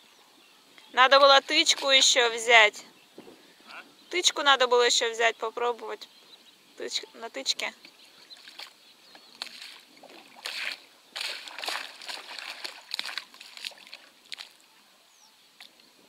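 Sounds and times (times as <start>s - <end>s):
water splashing against boat hull: 8.4s - 14.6s.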